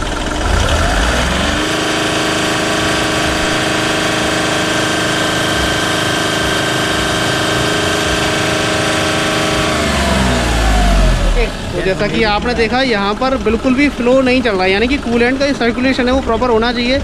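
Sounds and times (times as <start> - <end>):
diesel engine revving: 0.0 - 17.0.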